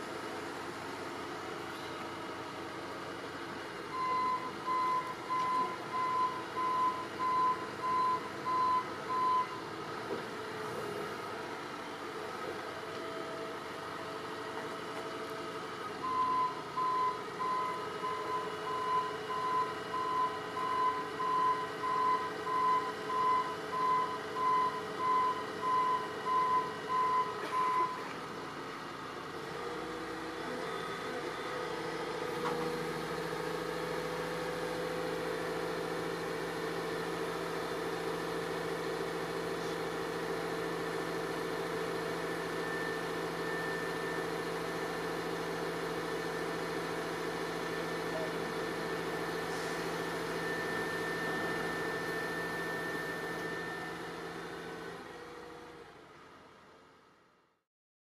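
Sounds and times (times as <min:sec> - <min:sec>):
piling rig engine humming: 0:00.0 - 0:56.3.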